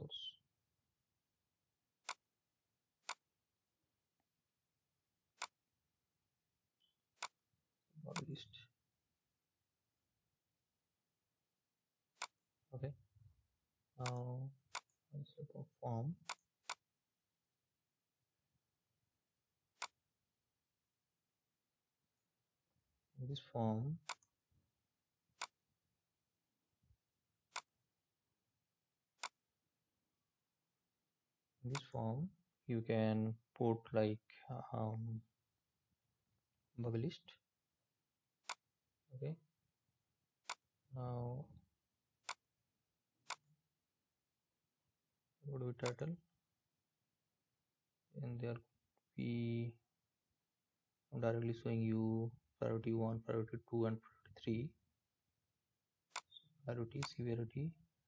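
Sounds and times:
computer mouse clicks: 0:03.0 - 0:03.2, 0:08.1 - 0:08.4, 0:56.1 - 0:56.4.

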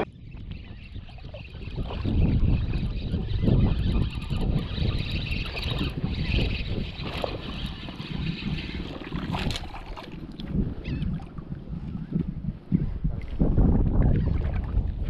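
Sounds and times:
wind buffeting microphone: 0:00.0 - 0:15.0
fish splashing: 0:04.7 - 0:11.0.

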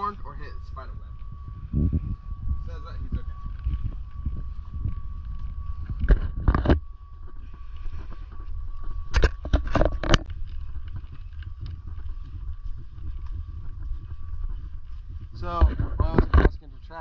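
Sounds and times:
faint thin tone: 0:00.0 - 0:10.2
wind rumble on microphone: 0:00.0 - 0:17.0.

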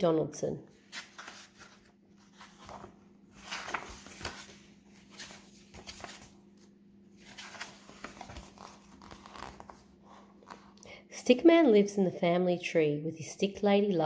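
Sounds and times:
faint steady hum: 0:00.0 - 0:14.0
book pages turning: 0:00.8 - 0:10.8.

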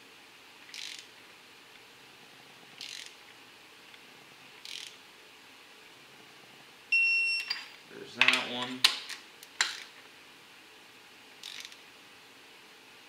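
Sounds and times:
torque wrench ratcheting: 0:00.7 - 0:01.1, 0:02.8 - 0:03.2, 0:04.6 - 0:05.0, 0:11.4 - 0:11.8.

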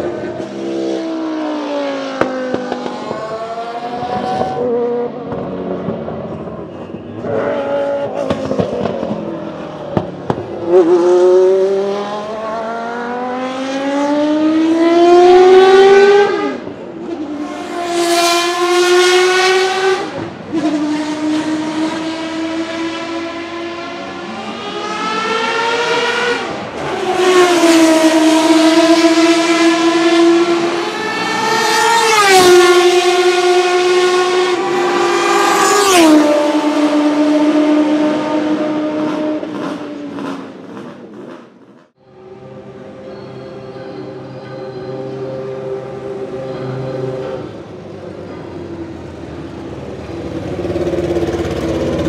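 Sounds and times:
racing car engine at high revs: 0:00.0 - 0:41.6.

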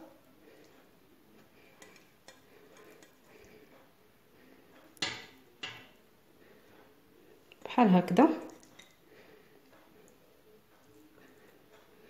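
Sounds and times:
faint kitchen handling: 0:04.8 - 0:06.0.

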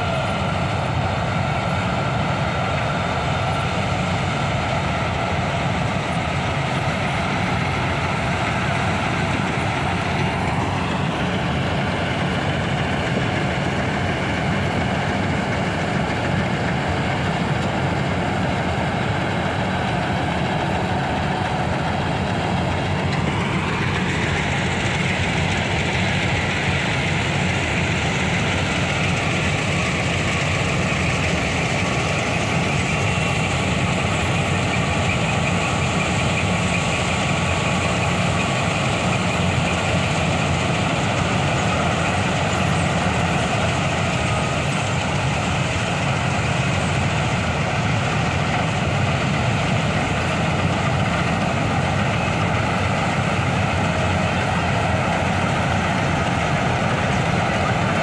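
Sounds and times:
combine harvester engine drone: 0:00.0 - 0:58.0.

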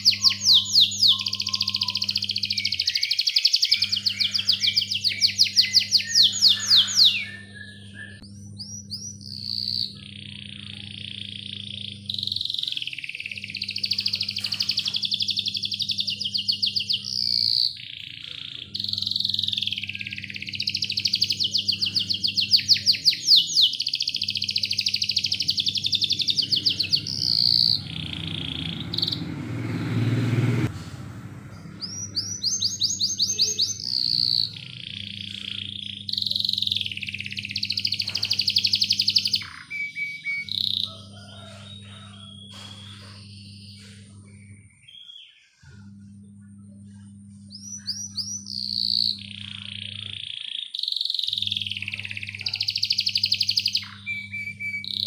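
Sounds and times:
canary singing trills: 0:00.0 - 0:30.7, 0:31.5 - 0:55.0
steady low hum: 0:00.0 - 0:50.5, 0:51.3 - 0:55.0
low rushing noise: 0:27.8 - 0:31.9.

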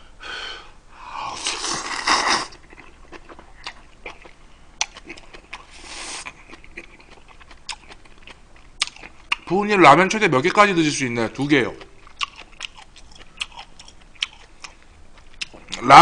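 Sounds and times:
man slurping noodles: 0:01.2 - 0:02.6
wet chewing: 0:01.5 - 0:09.5, 0:11.8 - 0:15.8.

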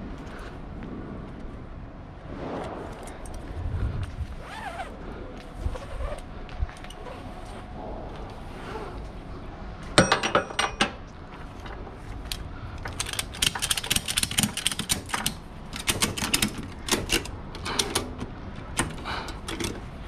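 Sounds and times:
ratchet strap clicking: 0:12.3 - 0:18.1.

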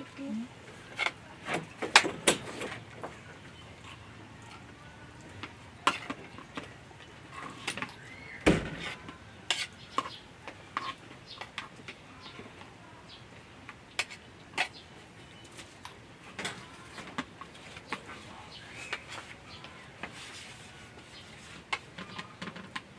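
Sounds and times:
metal spoon scraping a plate: 0:08.8 - 0:10.2, 0:10.8 - 0:11.0.

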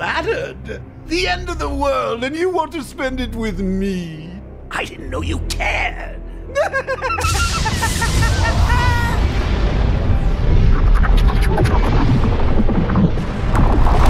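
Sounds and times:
film score music: 0:00.0 - 0:14.0
man cackling laugh: 0:06.5 - 0:09.3
deep rumbling with booms: 0:07.2 - 0:14.0.

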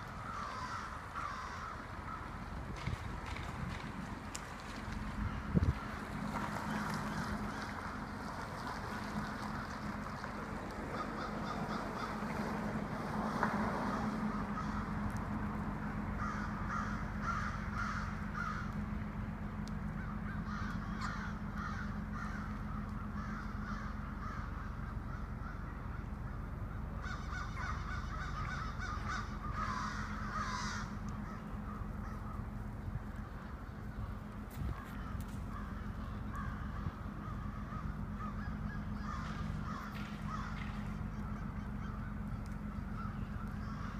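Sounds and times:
steady low hum: 0:00.0 - 0:43.9
crows cawing: 0:00.1 - 0:02.4, 0:10.8 - 0:12.6, 0:13.2 - 0:15.2, 0:15.9 - 0:19.0, 0:19.6 - 0:32.6, 0:33.2 - 0:43.9.

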